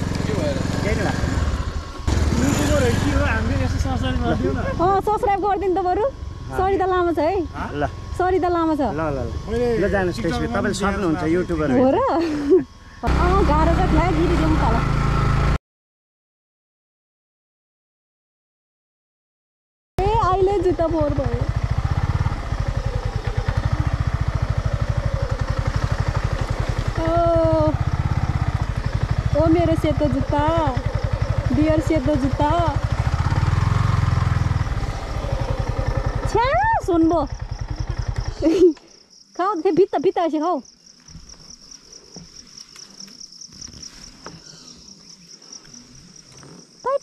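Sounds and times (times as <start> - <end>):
insects trilling: 0.0 - 14.8, 20.0 - 47.0
motorcycle engine running: 0.0 - 15.6, 20.0 - 38.9.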